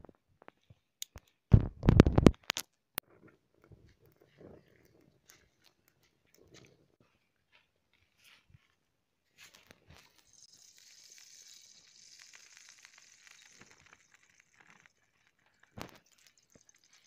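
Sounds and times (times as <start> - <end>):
oil sizzling and crackling: 9.8 - 17.0.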